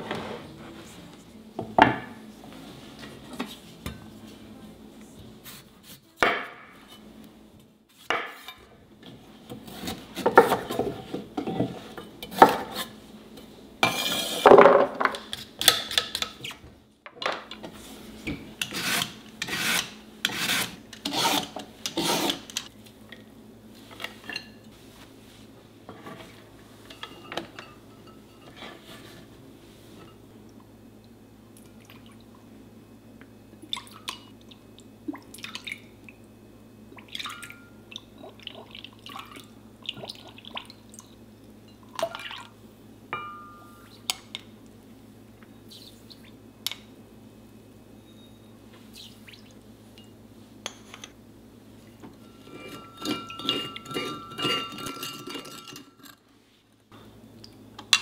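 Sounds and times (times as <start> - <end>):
knife scraping radish: 18.6 - 22.6.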